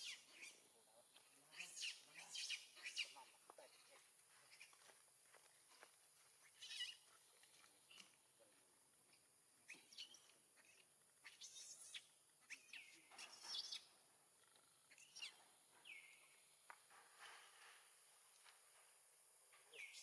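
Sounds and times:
high-pitched animal chirps: 6.5 - 7.0, 9.7 - 13.9.

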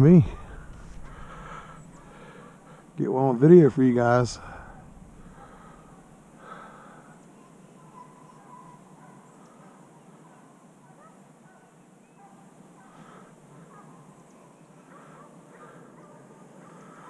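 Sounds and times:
distant animal calls: 0.0 - 3.0, 3.9 - 10.4, 11.0 - 17.0
outdoor background noise: 0.0 - 17.0.

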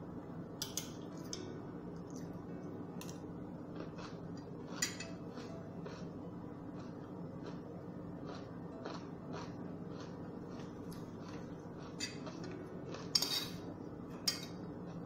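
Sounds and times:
low steady hum: 0.0 - 15.0
soft chewing: 1.0 - 13.1
spoon scraping ceramic plate: 13.1 - 13.6.

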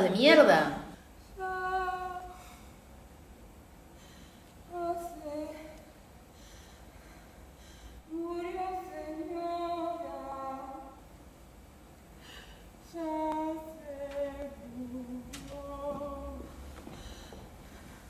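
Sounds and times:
woman singing unaccompanied: 0.0 - 2.6, 4.7 - 5.9, 8.1 - 11.1, 12.8 - 16.8.

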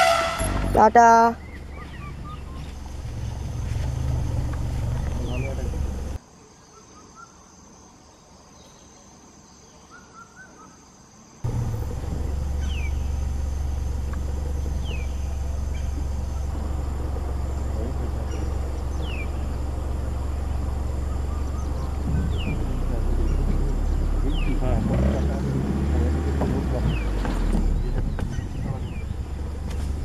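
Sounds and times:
bird call: 0.0 - 5.8, 12.4 - 24.6
low rumble: 1.4 - 6.2, 11.5 - 30.0.

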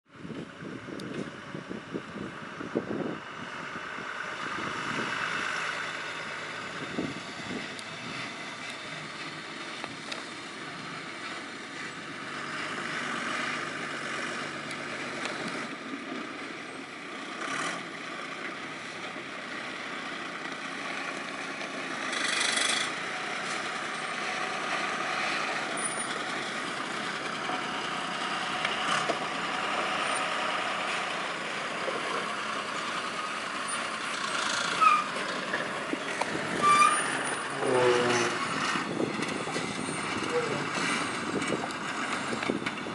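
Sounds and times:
diesel truck running under load: 0.1 - 42.9.

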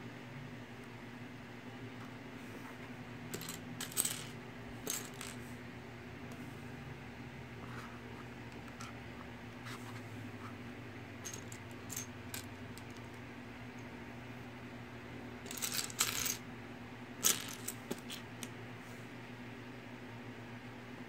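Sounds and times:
plastic bricks clicking and rattling: 3.4 - 5.4, 15.5 - 16.4.

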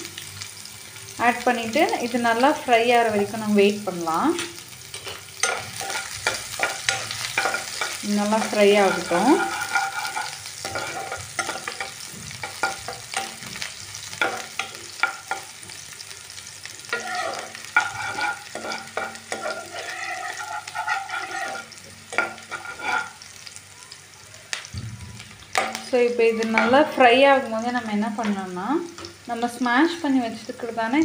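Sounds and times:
onion sizzling in oil: 0.0 - 31.0
spatula scraping pan: 4.9 - 15.8, 16.8 - 23.4.

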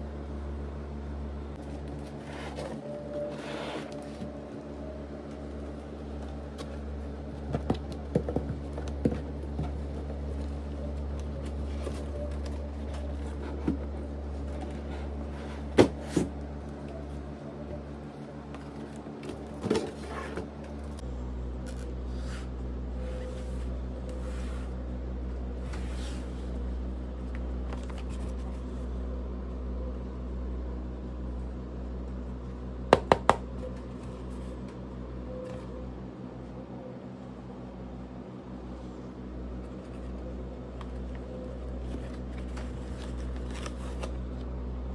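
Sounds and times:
low hum: 0.0 - 44.9
cardboard box sliding and scraping: 2.0 - 4.2.

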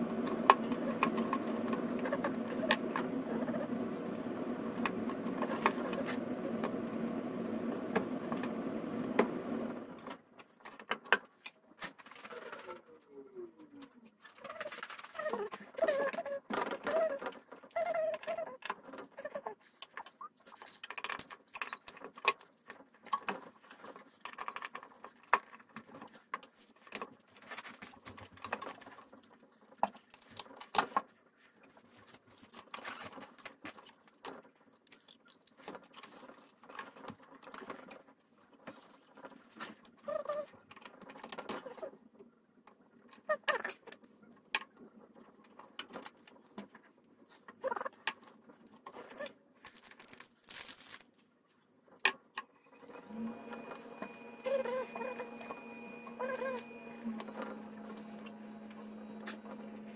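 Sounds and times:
high squeaky chirps: 19.8 - 22.8, 24.4 - 28.3, 52.9 - 59.9.

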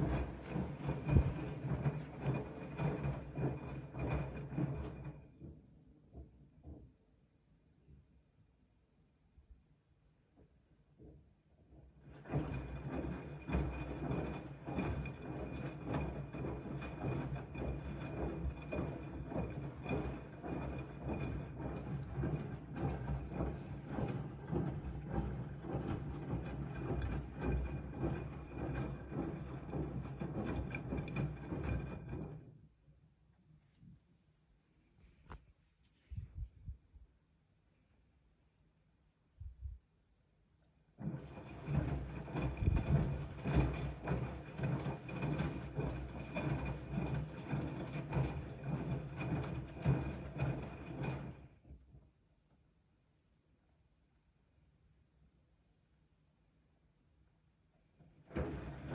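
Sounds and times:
washing machine motor hum: 0.0 - 5.6, 11.9 - 32.5, 41.0 - 51.5.

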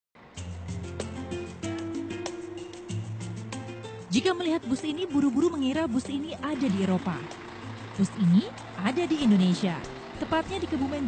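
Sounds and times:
background music with drums: 0.3 - 11.0.

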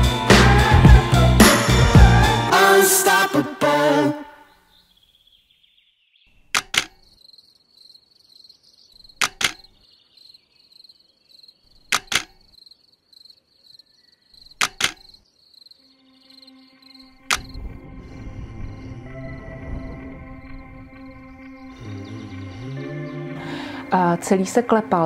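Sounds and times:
sharp clicks: 6.5 - 7.2, 9.0 - 9.8, 11.8 - 12.5, 14.4 - 15.2, 17.3 - 17.6
crickets chirring: 6.6 - 24.0
low held musical tone: 15.9 - 25.0.

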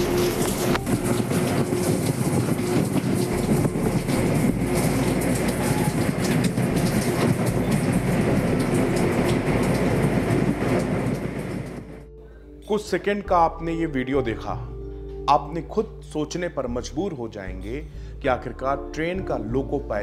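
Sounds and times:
locomotive cab rumble and hum: 0.0 - 12.2.

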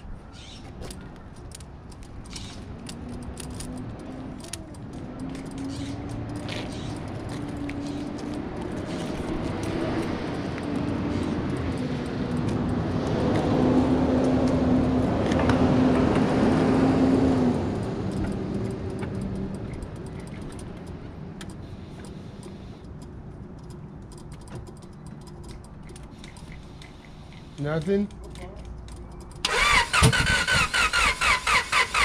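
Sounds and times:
vehicle engine steady tone: 0.0 - 32.0.

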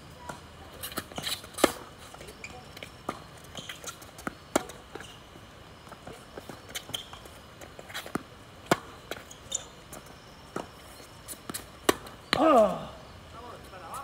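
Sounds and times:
racket striking tennis ball: 0.8 - 1.9, 7.8 - 9.7, 10.5 - 12.6
person shouting: 12.4 - 13.0.

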